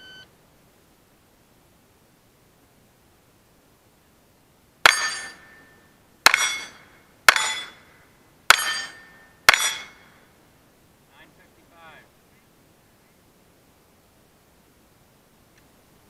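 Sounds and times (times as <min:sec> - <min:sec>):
metallic ring of steel target: 0:04.8 - 0:07.9, 0:08.5 - 0:10.2.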